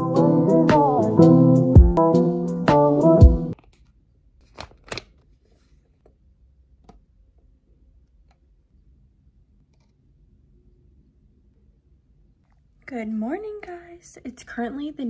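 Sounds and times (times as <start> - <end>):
low room hum: 3.6 - 15.0.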